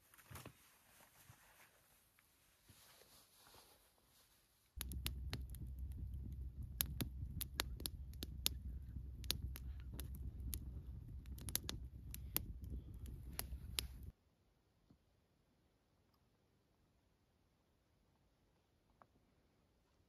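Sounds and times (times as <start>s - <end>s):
campfire crackling and popping: 4.8s - 14.1s
low fire rumble: 4.8s - 14.1s.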